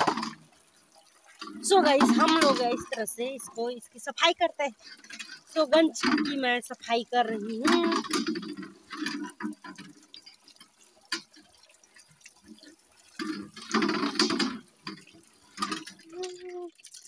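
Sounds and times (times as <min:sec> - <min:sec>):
scrubbing metal pot in water: 0:01.3 - 0:17.0.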